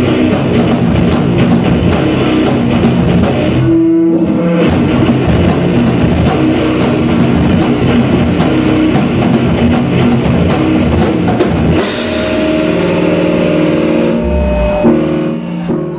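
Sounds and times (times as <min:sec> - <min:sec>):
drum kit: 0:00.0 - 0:15.4
distorted electric guitar: 0:00.0 - 0:15.9
cymbal crash: 0:11.9 - 0:15.7.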